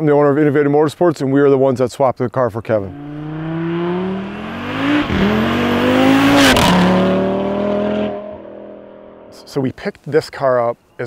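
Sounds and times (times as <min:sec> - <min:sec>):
car engine accelerating hard: 0:02.8 - 0:09.5.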